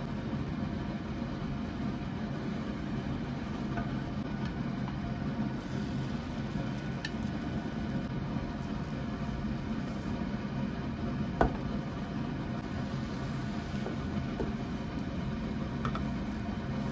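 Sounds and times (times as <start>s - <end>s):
kitchen fan humming: 0.0s - 16.9s
chopsticks tapping a pan: 15.8s - 16.2s.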